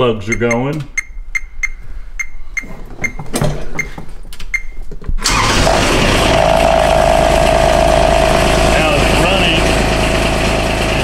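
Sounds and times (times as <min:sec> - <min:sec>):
diesel engine starting and running: 0:05.2 - 0:11.0.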